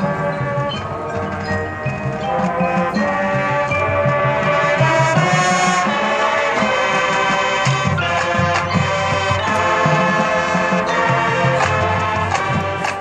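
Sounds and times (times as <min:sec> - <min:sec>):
marching band playing: 0:00.0 - 0:13.0.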